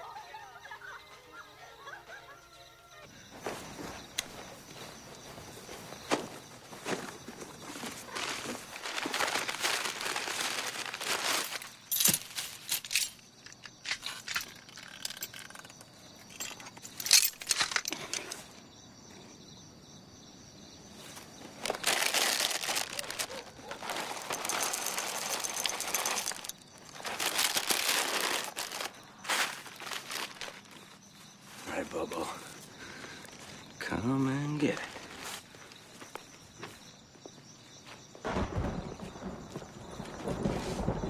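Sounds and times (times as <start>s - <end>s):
paper wrapping crinkling: 3.5s - 15.7s, 21.0s - 31.0s
cardboard box rustling: 21.6s - 30.8s.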